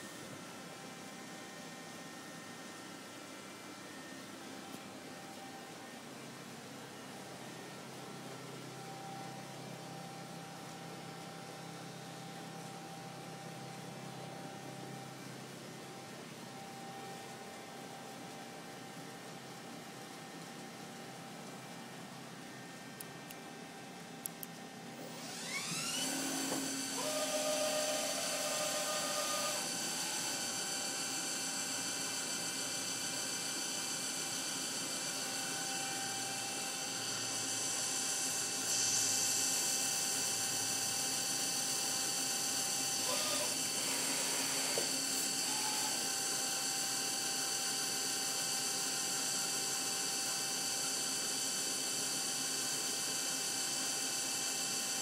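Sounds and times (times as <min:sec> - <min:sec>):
milling machine spindle whine: 0:24.9 - 0:55.0
short motor tones: 0:25.0 - 0:33.0, 0:42.4 - 0:46.2.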